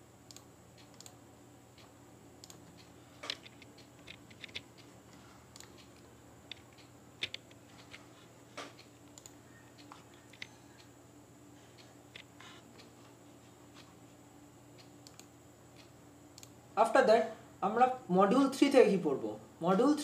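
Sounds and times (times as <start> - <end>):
faint electrical hum: 0.0 - 20.0
keyboard and mouse clicks: 0.3 - 1.2, 2.4 - 4.9, 5.5 - 8.0, 8.6 - 10.6, 12.1 - 12.6, 15.0 - 15.3.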